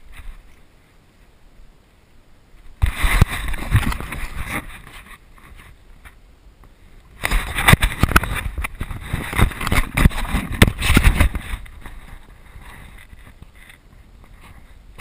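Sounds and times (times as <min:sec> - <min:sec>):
faint rustle: 0:00.0 - 0:15.0
camera handling rubbing and bumps: 0:02.8 - 0:06.2, 0:07.2 - 0:15.0.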